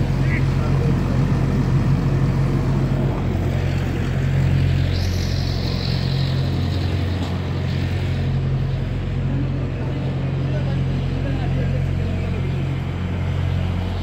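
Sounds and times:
truck engine and pump humming: 0.0s - 14.0s
high-pitched hiss: 4.8s - 7.0s.

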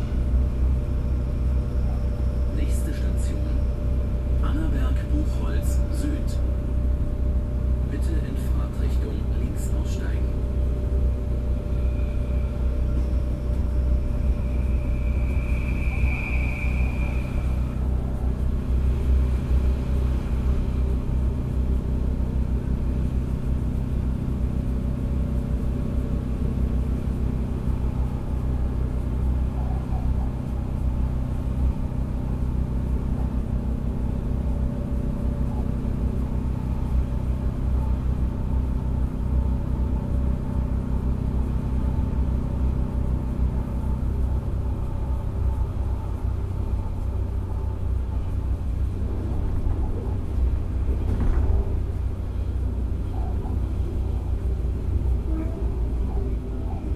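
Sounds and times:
high-pitched whine: 0.0s - 56.9s
railcar engine drone and rumble: 0.0s - 56.9s.

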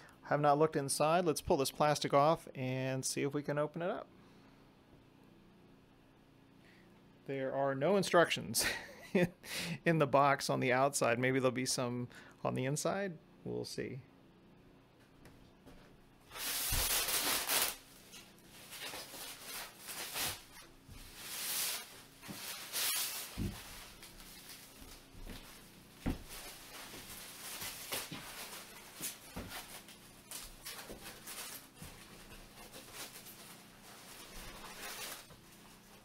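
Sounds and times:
plastic wrap crinkling: 16.3s - 36.0s.

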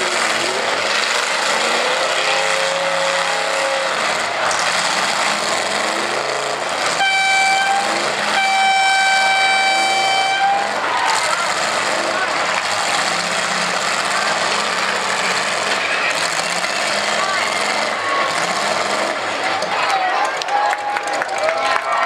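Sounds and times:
car engines running: 0.0s - 22.0s
loud horn blasts: 1.8s - 4.1s, 6.8s - 10.8s.

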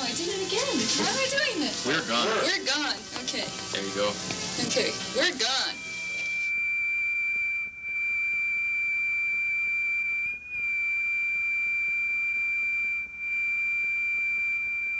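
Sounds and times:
high-pitched sine-wave test tone: 5.4s - 14.9s.

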